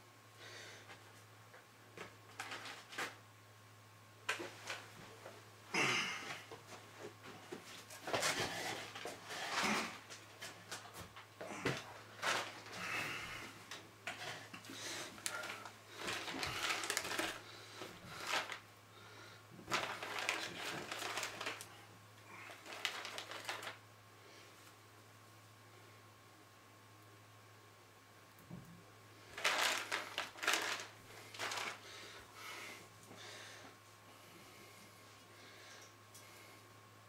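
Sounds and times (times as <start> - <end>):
steady low hum: 0.0 - 37.0
plastic packaging crinkling: 2.3 - 3.2, 12.1 - 13.0, 13.7 - 18.6, 19.6 - 23.8, 29.2 - 32.2.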